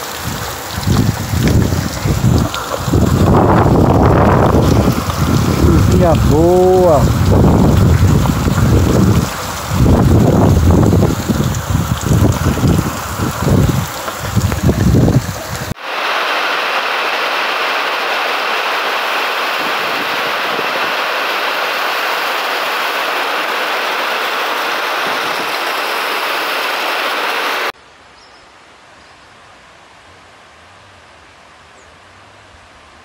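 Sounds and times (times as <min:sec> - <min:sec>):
heavy rain runoff splashing: 0:00.0 - 0:27.8
wind buffeting microphone: 0:00.2 - 0:15.8, 0:19.4 - 0:21.4, 0:24.8 - 0:25.7.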